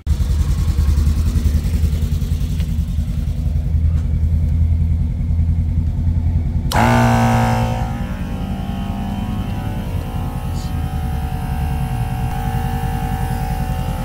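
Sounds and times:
higher steady hum: 0:00.1 - 0:14.0
air compressor pulsing: 0:06.5 - 0:14.0.

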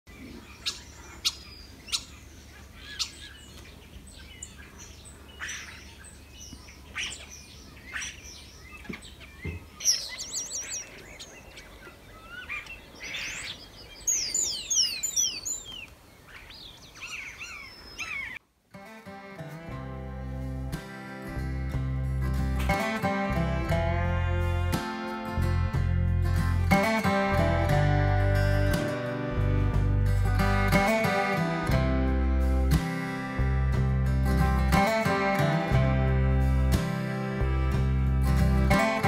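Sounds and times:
birds chirping: 0:00.1 - 0:18.4.

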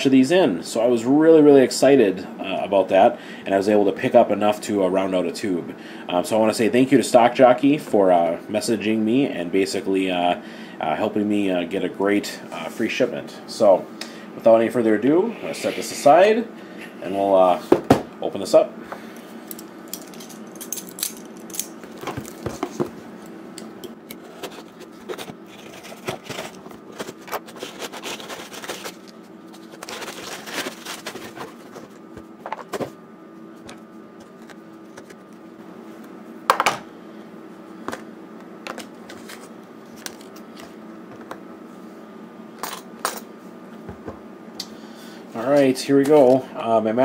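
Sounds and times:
steady low hum: 0:00.0 - 0:47.0
scrapes and clicks of handling: 0:23.9 - 0:32.9
packing paper rustling: 0:24.2 - 0:32.8.

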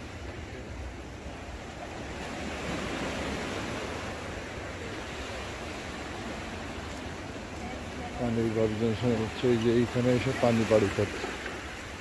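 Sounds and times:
ocean surf breaking: 0:00.0 - 0:12.0.

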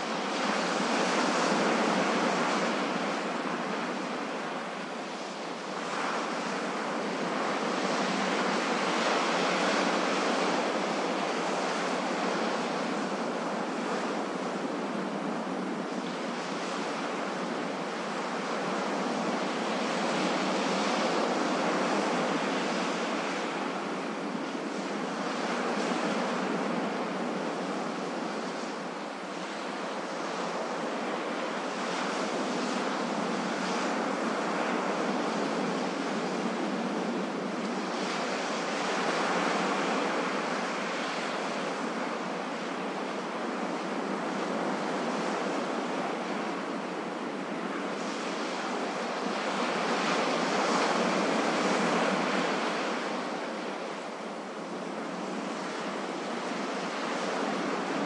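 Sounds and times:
ocean surf on a beach: 0:00.0 - 0:58.0.

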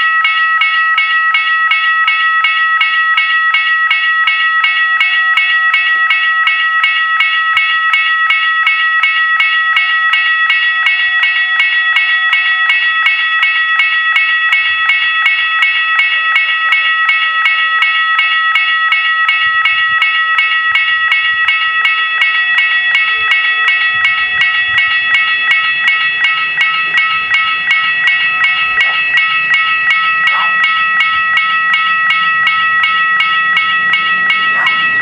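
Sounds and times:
level-crossing warning bells: 0:00.0 - 0:35.0.

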